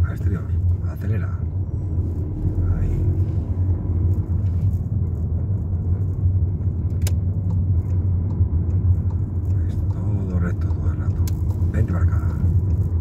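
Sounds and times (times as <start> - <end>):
car engine and road noise: 0.0 - 13.0
sharp click: 6.8 - 8.4.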